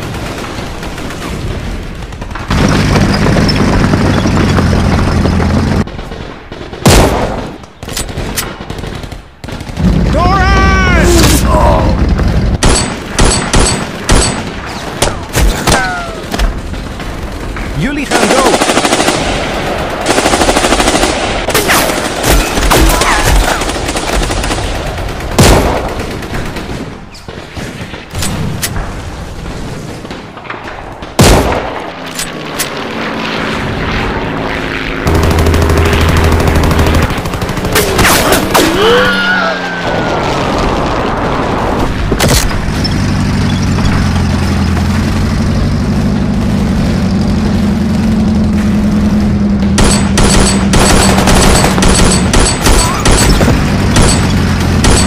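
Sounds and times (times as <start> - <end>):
engine drone: 2.5 - 5.9, 31.7 - 55.0
rifle shots: 5.8 - 10.1, 12.6 - 28.6, 29.8 - 33.1, 49.1 - 55.0
machine-gun bursts: 35.1 - 38.5, 49.8 - 55.0.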